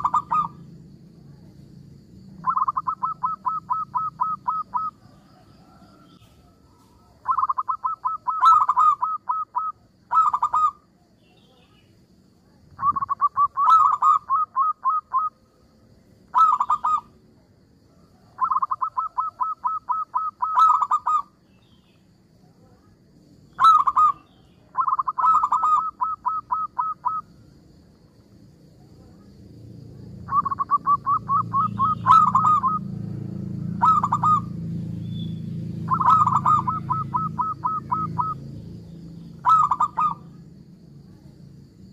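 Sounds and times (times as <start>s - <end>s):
dove cooing: 0.0s - 0.7s, 2.4s - 10.8s, 12.7s - 15.4s, 16.3s - 17.2s, 18.2s - 21.4s, 23.5s - 27.3s, 30.2s - 34.6s, 35.8s - 38.5s, 39.3s - 40.4s
low steady rumble: 27.2s - 41.9s.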